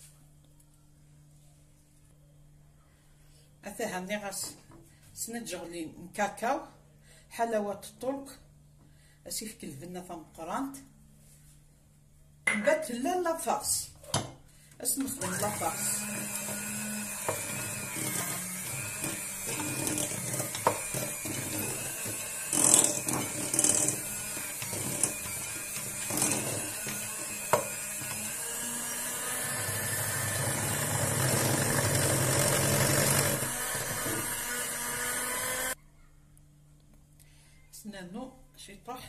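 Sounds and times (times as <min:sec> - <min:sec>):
electric hand mixer running: 0:15.2 - 0:35.8.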